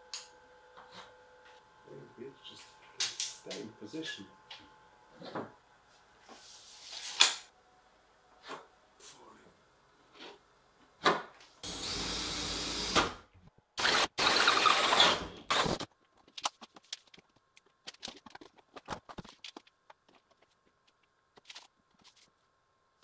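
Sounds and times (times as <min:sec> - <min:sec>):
power drill drilling into wood: 0:11.6 - 0:13.2, 0:13.8 - 0:15.8.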